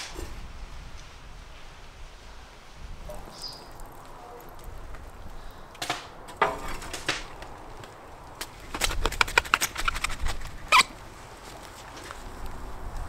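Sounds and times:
metal poker knocking and scraping: 8.7s - 10.9s.

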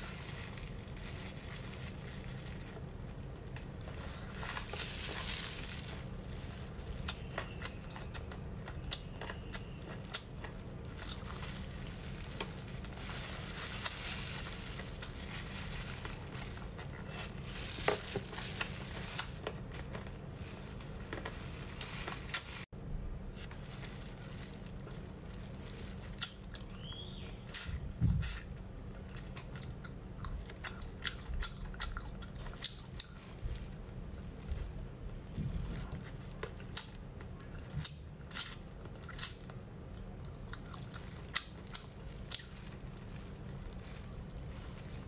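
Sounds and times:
chewing ribs: 26.1s - 33.4s, 34.4s - 45.0s.

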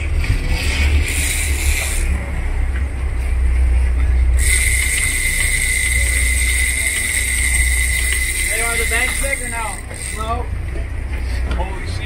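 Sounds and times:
high-pitched whine: 0.0s - 2.8s, 4.2s - 10.5s
boat engine low rumble: 0.0s - 12.0s.

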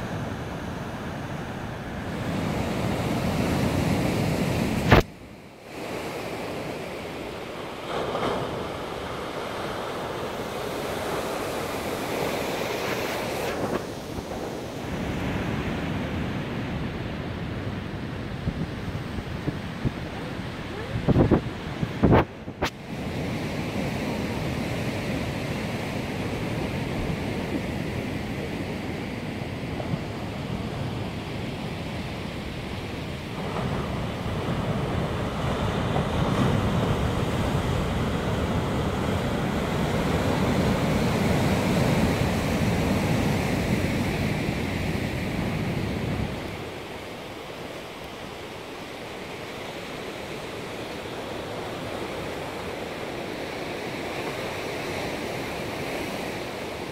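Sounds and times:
surf washing over rocks: 0.0s - 56.9s
wind rumbling on microphone: 0.0s - 56.9s.

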